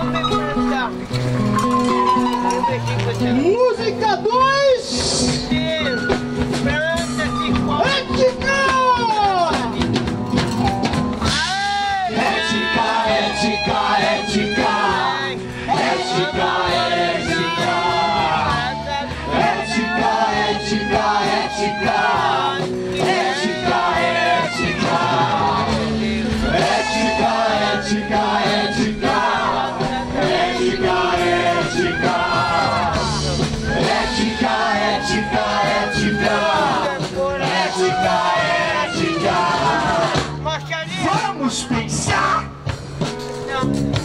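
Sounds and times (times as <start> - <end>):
live band playing: 0.0 - 44.0
voices singing: 11.2 - 40.4.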